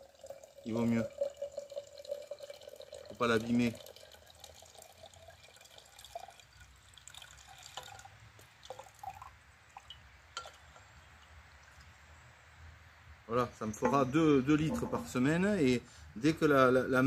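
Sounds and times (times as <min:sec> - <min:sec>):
liquid trickling into glass jar: 0:00.0 - 0:12.0, 0:13.8 - 0:15.2.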